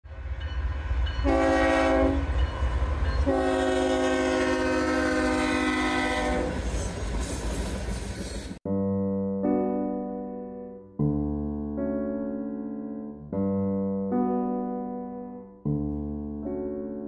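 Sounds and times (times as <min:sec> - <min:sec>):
low rumble of train: 0:00.0 - 0:08.6
locomotive air horn blasts: 0:01.2 - 0:02.4, 0:03.2 - 0:06.6.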